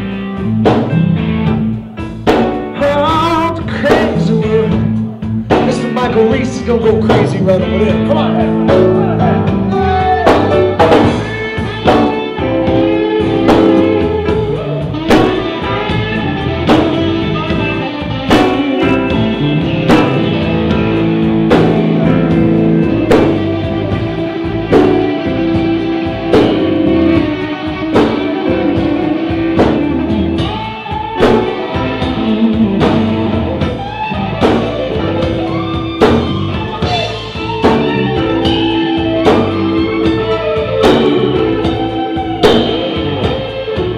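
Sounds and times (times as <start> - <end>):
bass guitar: 0.0 - 43.9
drum kit beat: 0.0 - 43.9
electric guitars: 0.0 - 43.9.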